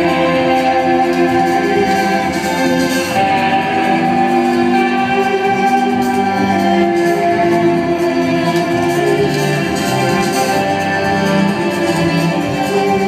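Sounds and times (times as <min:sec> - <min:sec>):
live band music over sound system: 0:00.0 - 0:13.0.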